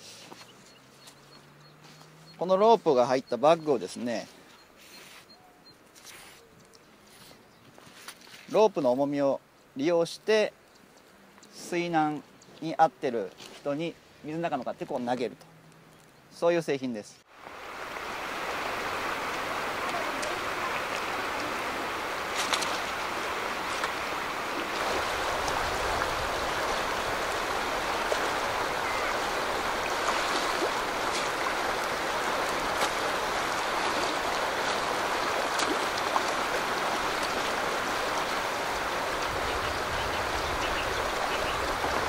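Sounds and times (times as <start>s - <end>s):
river rushing over stones: 17.3s - 42.0s.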